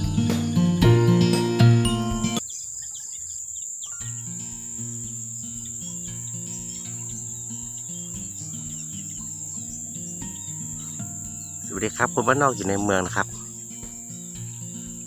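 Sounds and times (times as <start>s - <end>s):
insects chirring: 0.0s - 15.0s
soft background music: 4.0s - 15.0s.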